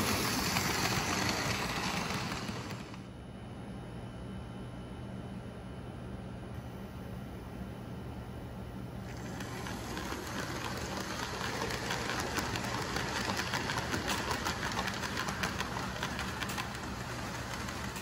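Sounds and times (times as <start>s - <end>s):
model train wheels clicking: 0.0s - 3.0s, 9.1s - 18.0s.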